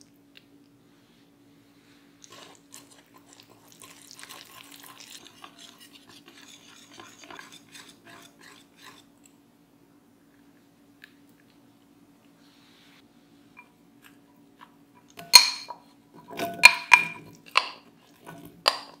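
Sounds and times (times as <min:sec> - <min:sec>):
whisk beating batter in glass bowl: 0:02.3 - 0:09.1.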